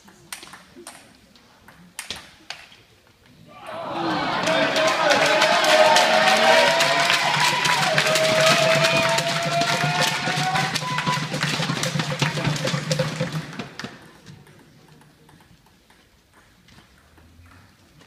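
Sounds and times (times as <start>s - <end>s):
crowd clapping: 3.9s - 14.2s.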